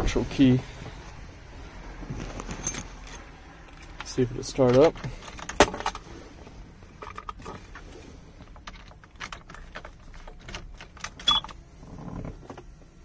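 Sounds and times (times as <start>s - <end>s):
keys jangling in ignition: 2.2s - 6.0s, 8.4s - 11.6s.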